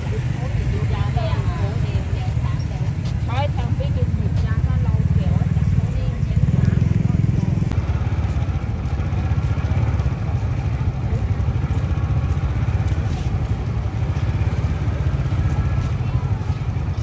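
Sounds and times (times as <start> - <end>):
motorbike engines rumbling: 0.0 - 17.0
street noise: 0.0 - 17.0.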